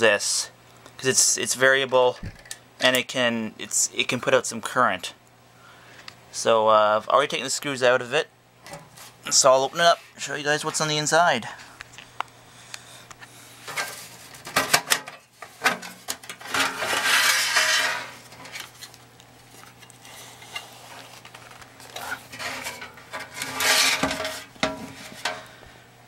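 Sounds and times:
metal scraping: 15.4s - 18.8s, 19.6s - 25.5s
metal knocks and clanks: 22.3s - 25.5s.

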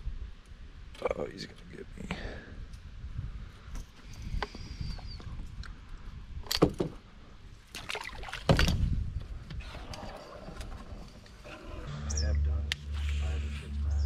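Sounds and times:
water splashing: 7.7s - 8.8s
low rumble: 11.3s - 14.0s.

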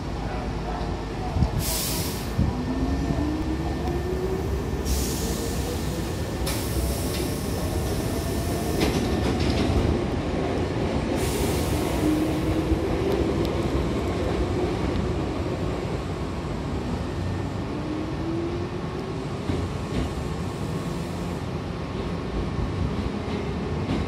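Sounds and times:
low train rumble: 0.0s - 24.0s
train doors air hiss: 1.4s - 2.6s, 4.6s - 9.3s, 11.1s - 12.7s.

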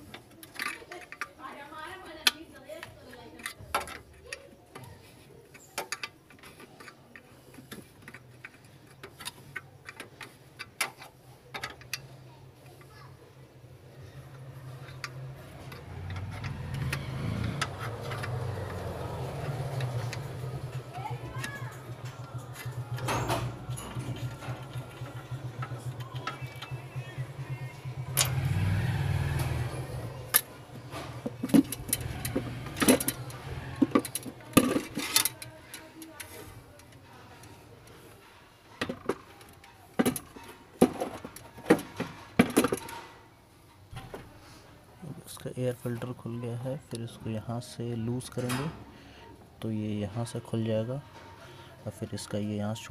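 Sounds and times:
sharp knocks and clatters of parts: 0.0s - 1.4s, 2.2s - 13.0s, 14.0s - 43.2s.

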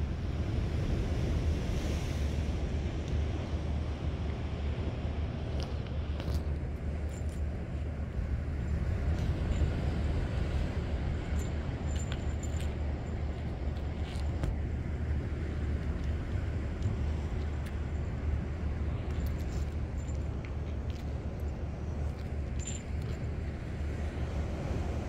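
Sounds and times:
low outdoor rumble: 0.0s - 25.0s.

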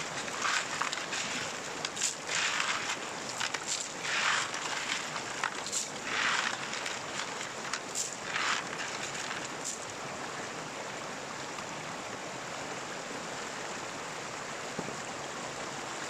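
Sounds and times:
stream water running: 0.0s - 16.0s.

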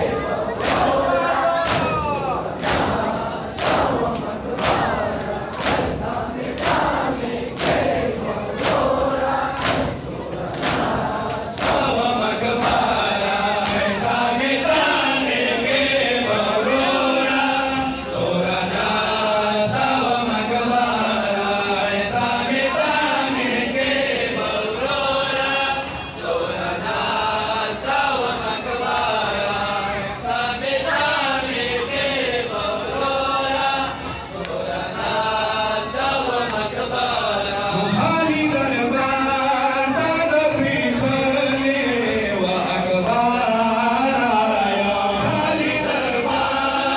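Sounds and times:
men chanting in unison: 0.0s - 46.9s
men beating their chests: 0.1s - 14.2s.

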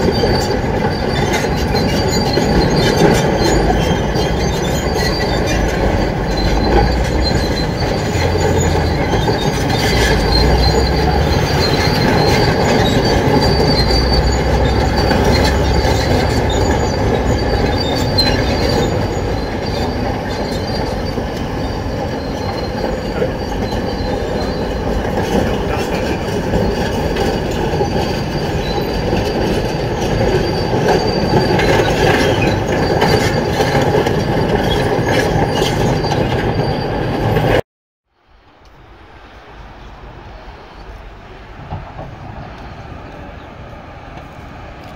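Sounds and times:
excavator engine drone: 0.0s - 33.6s
metallic squealing and clanking: 0.0s - 37.6s.

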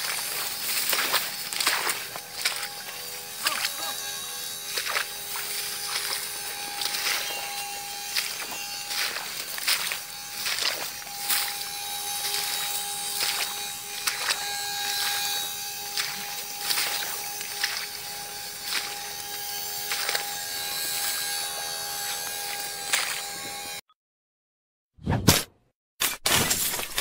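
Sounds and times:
steady buzzing drone: 0.0s - 23.8s
rice stalks rustling: 4.8s - 17.9s.

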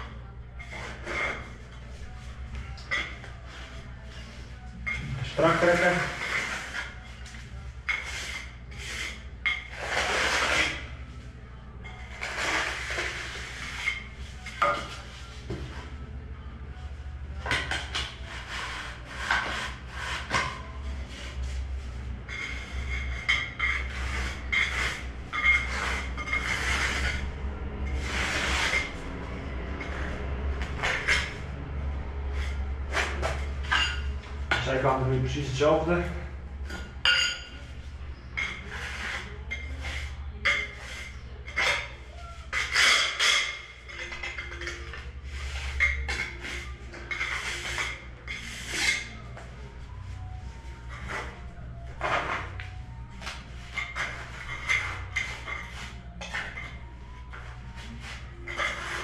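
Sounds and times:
tool scraping wet mortar: 0.6s - 1.7s, 5.3s - 11.0s, 12.1s - 15.0s, 18.1s - 21.4s, 22.3s - 29.0s, 38.4s - 43.2s, 45.3s - 49.2s, 53.7s - 59.0s.

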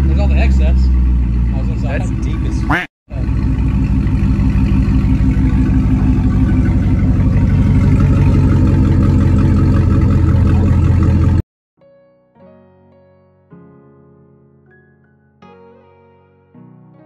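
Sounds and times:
car engine idling: 0.0s - 11.4s.

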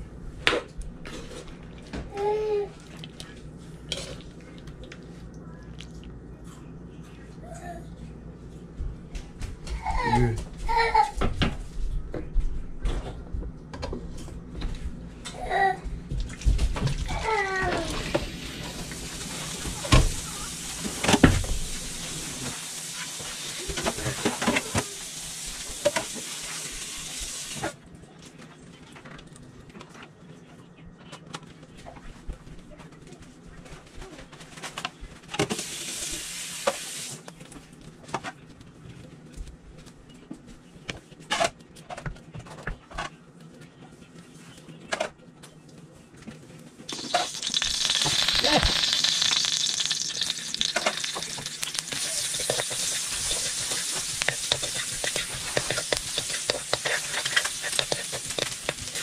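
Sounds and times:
paper towel wiping pan: 51.8s - 59.0s.

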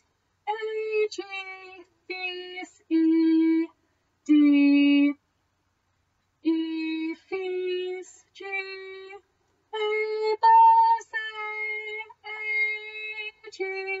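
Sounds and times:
woman singing unaccompanied: 0.0s - 5.2s, 6.4s - 14.0s.

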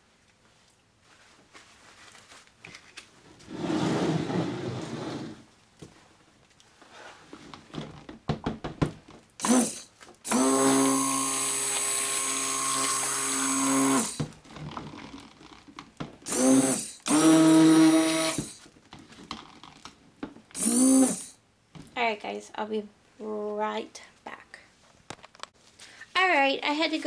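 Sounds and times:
stick blender motor humming: 9.4s - 14.3s, 16.3s - 18.6s, 20.6s - 21.3s.

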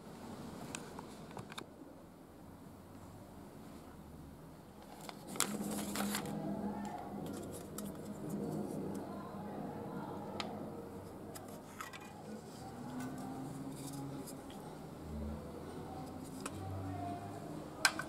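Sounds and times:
rustling: 4.8s - 6.4s.

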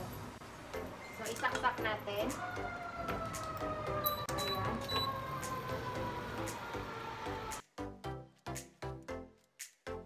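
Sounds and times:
outdoor noise: 0.0s - 10.0s
falling siren-like tone: 2.2s - 7.6s.

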